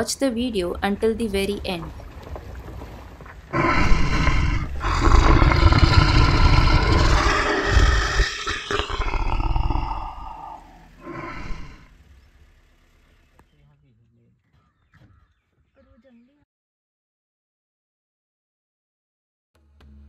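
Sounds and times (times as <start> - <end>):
big cat roaring: 3.5 - 11.9.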